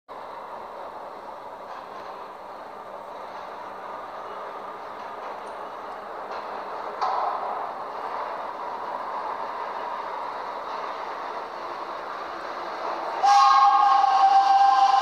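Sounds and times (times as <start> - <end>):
subway train rumbling: 0.1 - 15.0
train horn chord: 13.2 - 15.0.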